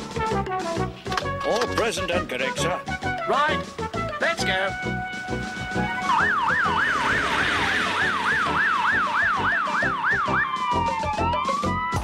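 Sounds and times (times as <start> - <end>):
fire engine siren wailing: 4.9 - 12.0.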